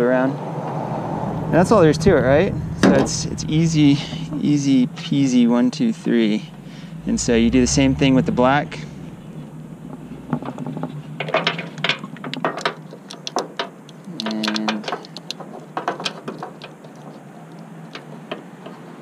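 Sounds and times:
low hum: 0:00.7 - 0:12.4
hands handling wires: 0:10.4 - 0:19.0.

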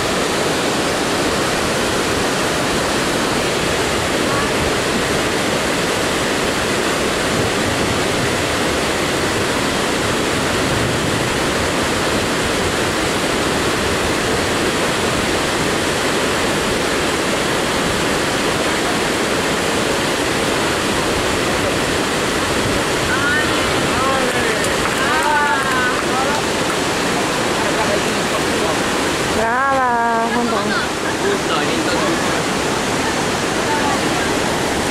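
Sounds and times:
water rushing over rocks: 0:00.0 - 0:34.9.

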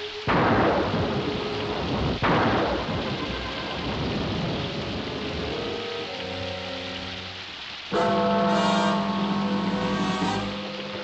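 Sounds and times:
heavy rain: 0:00.0 - 0:11.0
thunderclap rumbling: 0:00.2 - 0:06.0.

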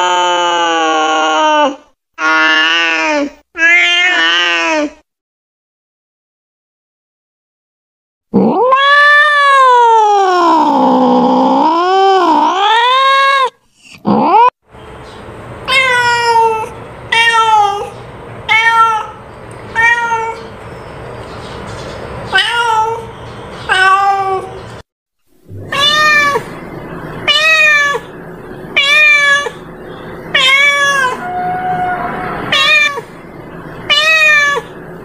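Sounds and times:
cat meowing: 0:03.6 - 0:04.9, 0:08.4 - 0:11.0, 0:15.7 - 0:20.5, 0:22.3 - 0:23.1, 0:23.7 - 0:24.6, 0:25.6 - 0:26.6, 0:27.2 - 0:28.1, 0:28.8 - 0:29.6, 0:30.3 - 0:33.2, 0:33.9 - 0:34.7.

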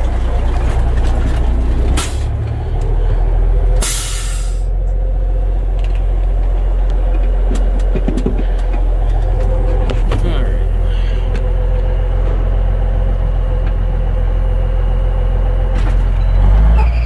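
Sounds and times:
diesel truck engine running: 0:00.0 - 0:17.0
compressed air hiss: 0:03.8 - 0:04.7.

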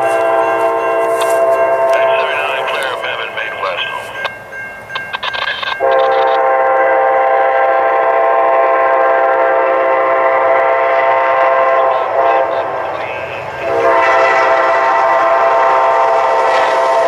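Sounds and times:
locomotive air horn blast: 0:00.0 - 0:02.0, 0:05.8 - 0:17.0.

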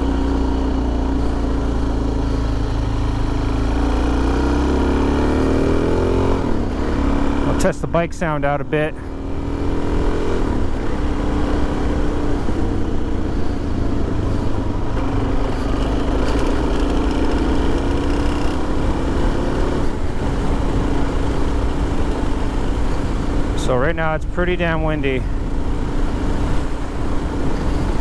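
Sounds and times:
motorcycle engine revving: 0:00.0 - 0:28.0
wind rumble on microphone: 0:09.3 - 0:28.0.

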